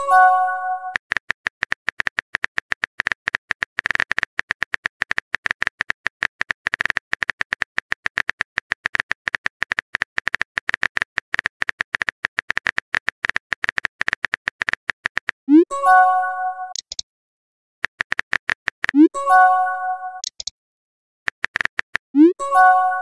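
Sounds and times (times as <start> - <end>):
phone keyboard typing taps: 0.9 - 15.4, 16.7 - 17.0, 17.8 - 19.1, 20.2 - 20.5, 21.3 - 22.1.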